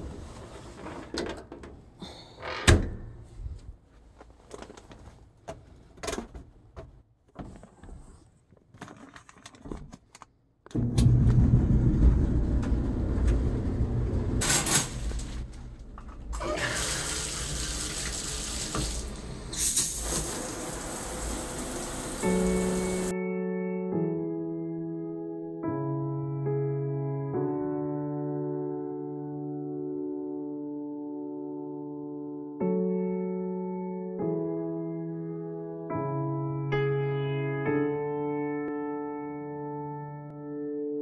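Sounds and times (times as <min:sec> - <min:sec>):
water rushing into washer tub: 0:10.8 - 0:23.1.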